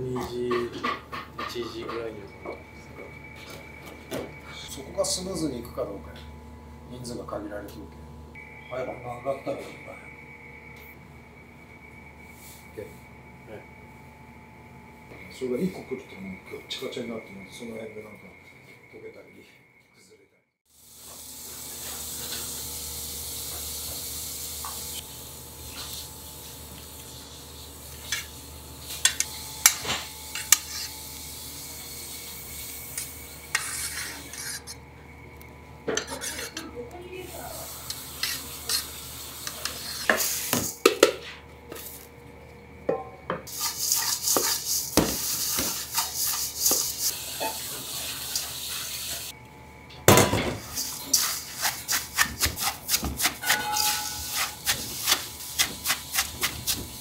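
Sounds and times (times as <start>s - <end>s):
steady background hum: 0.0s - 20.4s, 21.1s - 57.0s
utensils clinking on steel bowls: 28.9s - 31.0s, 35.9s - 36.8s, 37.8s - 40.3s, 50.2s - 56.6s.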